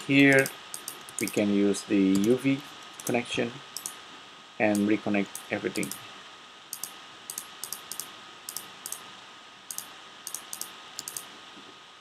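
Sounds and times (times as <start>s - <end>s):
low steady hiss: 0.0s - 12.0s
computer mouse and keyboard clicks: 0.2s - 1.5s, 2.1s - 3.2s, 3.8s - 4.0s, 4.7s - 6.0s, 6.7s - 9.0s, 9.7s - 11.3s.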